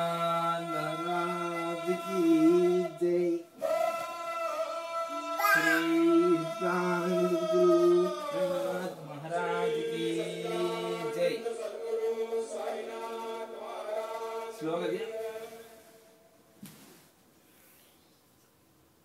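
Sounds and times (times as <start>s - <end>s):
voices chanting long notes: 3.6s - 15.8s.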